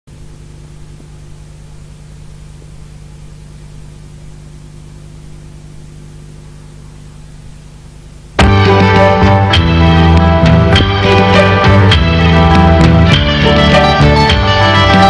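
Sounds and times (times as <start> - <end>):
low electrical hum: 0.1 - 8.4.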